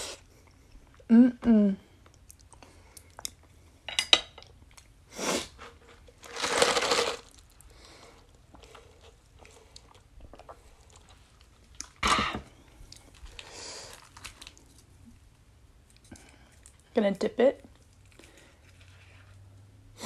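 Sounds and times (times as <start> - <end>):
sipping and chewing: 8.3 - 12.0.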